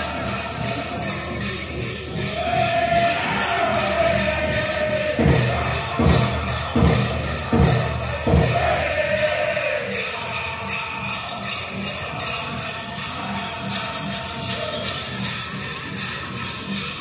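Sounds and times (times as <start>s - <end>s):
large drum beating steadily: 0.0s - 10.0s
group singing in high voices: 0.0s - 17.0s.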